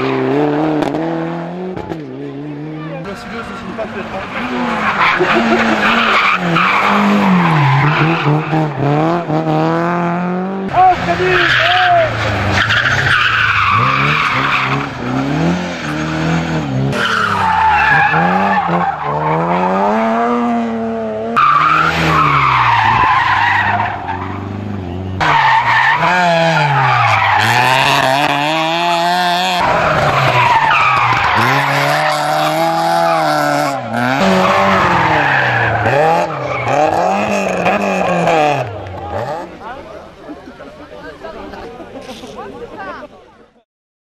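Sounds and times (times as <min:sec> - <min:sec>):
rally car engines revving: 0:00.0 - 0:42.9.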